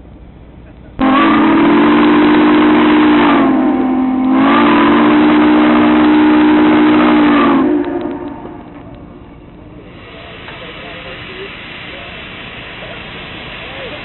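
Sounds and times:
steam locomotive whistle: 0:01.0 - 0:09.0.

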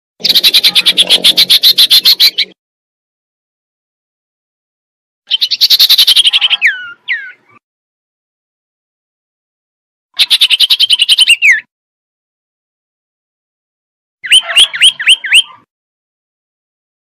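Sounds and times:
bird whistled calls: 0:00.2 - 0:02.6, 0:05.3 - 0:07.6, 0:10.2 - 0:11.7, 0:14.2 - 0:15.7
swooping bird whistles: 0:14.2 - 0:15.7.

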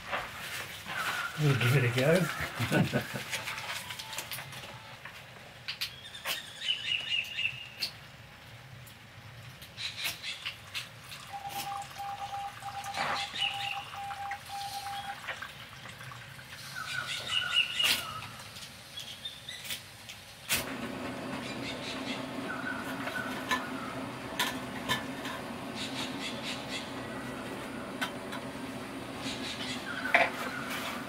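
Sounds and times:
rain: 0:06.8 - 0:31.0
pulsed calling tone: 0:11.3 - 0:15.2
steady low hum: 0:20.6 - 0:31.0.

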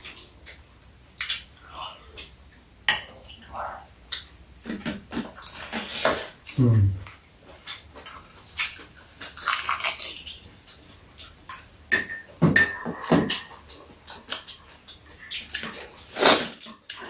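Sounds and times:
spoons clinking against bowls: 0:11.5 - 0:13.6.

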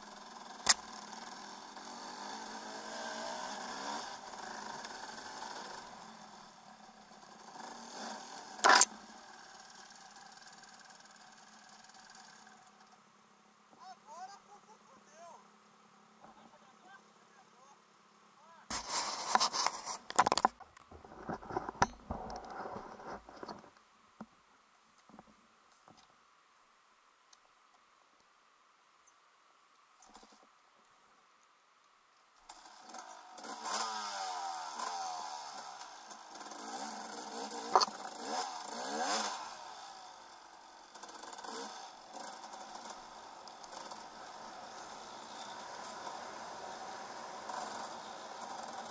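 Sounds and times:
two-stroke motorcycle engine revving: 0:00.0 - 0:13.0, 0:32.5 - 0:48.9
rustling in tall grass: 0:18.7 - 0:20.1
faint clicks: 0:27.3 - 0:28.3, 0:29.0 - 0:32.6.

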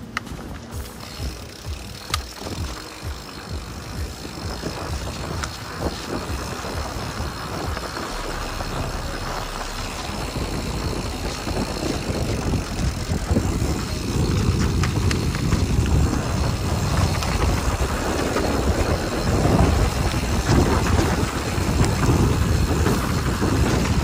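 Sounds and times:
bike frame rattling: 0:00.0 - 0:24.0
bike tyres rolling on dirt: 0:00.0 - 0:24.0.

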